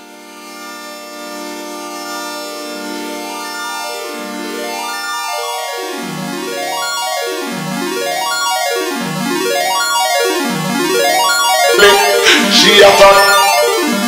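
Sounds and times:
instrumental music with held chords: 0:05.9 - 0:14.0.

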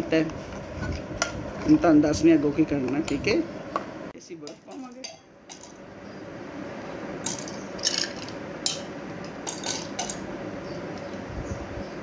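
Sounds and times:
ice cubes clinking in glass: 0:07.2 - 0:08.8.

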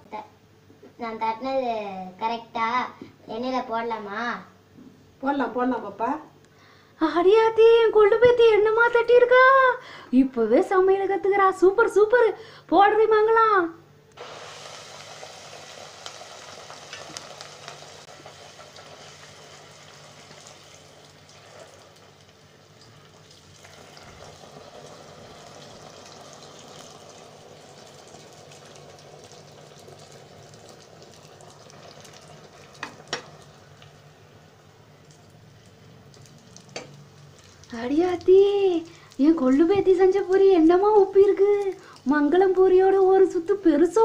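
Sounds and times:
dough sizzling in hot oil: 0:14.2 - 0:44.0.

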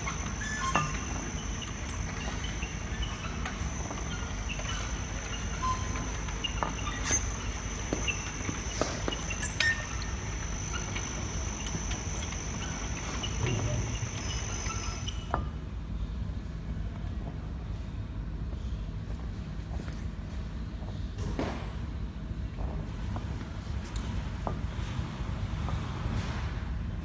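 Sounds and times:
conveyor machine humming: 0:00.0 - 0:15.4
high whine: 0:00.0 - 0:15.4.

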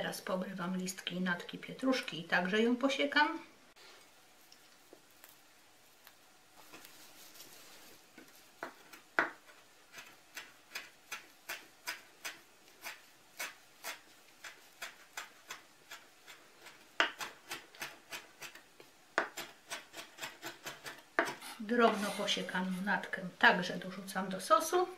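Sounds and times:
knife chopping on wooden board: 0:08.6 - 0:15.6, 0:17.0 - 0:18.5, 0:19.2 - 0:21.4.

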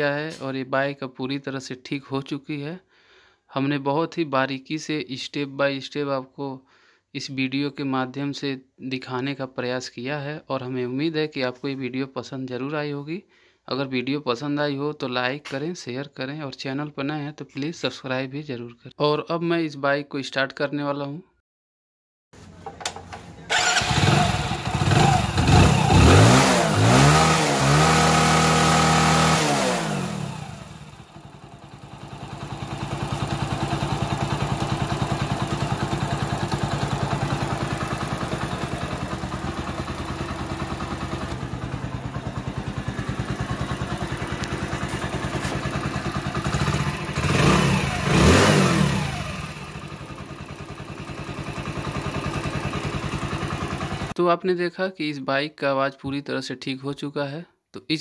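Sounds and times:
motorcycle engine revving and idling: 0:22.6 - 0:54.2.

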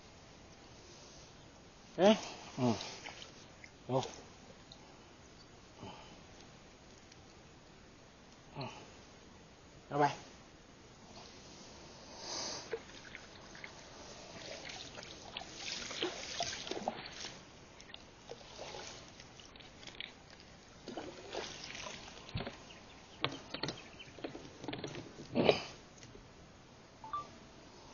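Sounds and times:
water lapping against a boat: 0:12.7 - 0:24.6.

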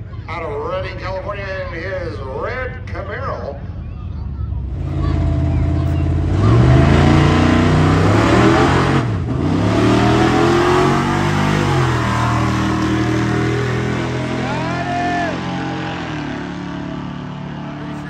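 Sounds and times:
race car engines accelerating: 0:03.6 - 0:18.0.

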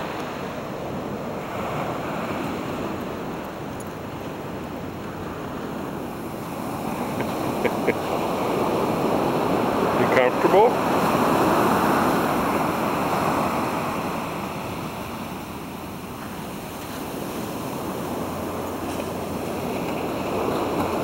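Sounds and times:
ocean surf on beach: 0:00.0 - 0:21.0.

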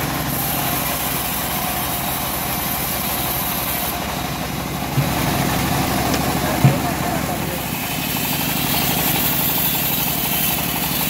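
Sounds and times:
bandsaw sawmill running: 0:00.0 - 0:11.0
knock: 0:06.1 - 0:07.0.

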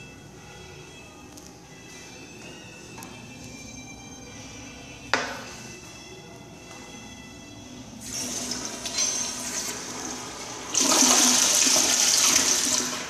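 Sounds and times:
toilet flushing: 0:08.0 - 0:13.0.

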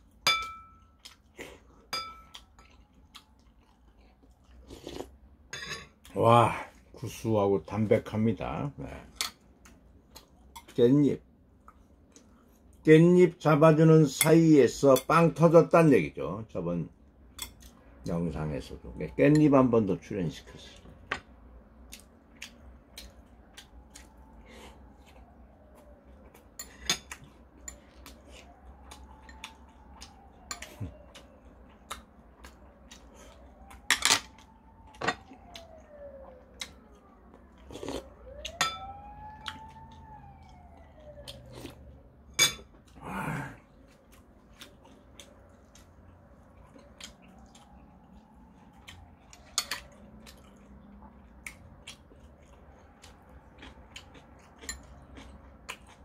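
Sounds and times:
utensils clinking on dishes: 0:00.2 - 0:00.8, 0:01.9 - 0:02.4, 0:05.5 - 0:06.0, 0:33.9 - 0:34.3, 0:42.4 - 0:42.7, 0:49.5 - 0:49.9
quiet chewing: 0:00.9 - 0:05.3, 0:09.4 - 0:10.8, 0:11.5 - 0:12.9, 0:21.8 - 0:38.6, 0:39.4 - 0:56.0
faint wailing tone: 0:23.6 - 0:43.7.

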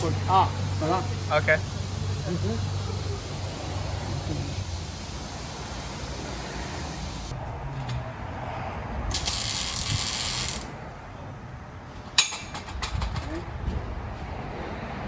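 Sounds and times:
loud hissing rush: 0:00.0 - 0:07.3
ratcheting tool: 0:09.1 - 0:10.7.

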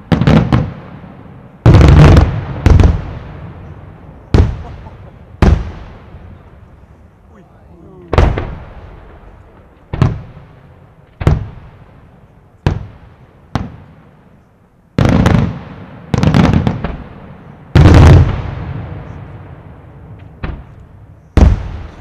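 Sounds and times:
firework bangs echoing: 0:00.0 - 0:06.9, 0:08.0 - 0:14.2, 0:15.0 - 0:22.0
rapid firework bursts: 0:01.6 - 0:03.5, 0:04.3 - 0:06.3.

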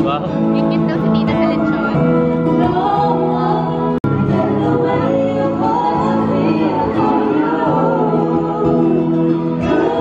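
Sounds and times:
song with singing: 0:01.8 - 0:10.0.

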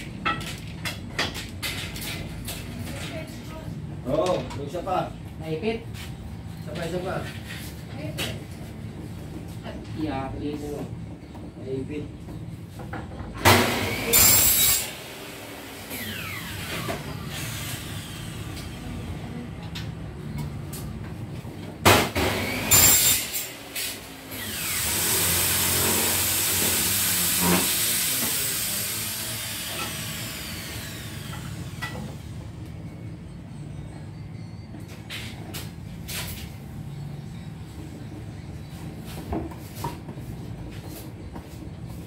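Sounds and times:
electric power tool whining: 0:13.5 - 0:18.8, 0:24.2 - 0:32.3.

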